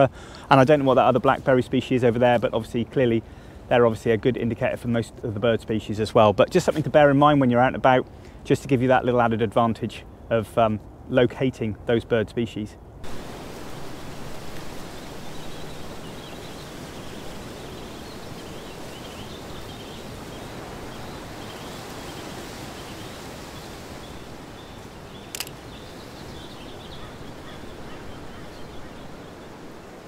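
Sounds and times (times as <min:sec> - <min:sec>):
low outdoor background noise: 0:00.0 - 0:30.0
sharp click: 0:25.3 - 0:25.6.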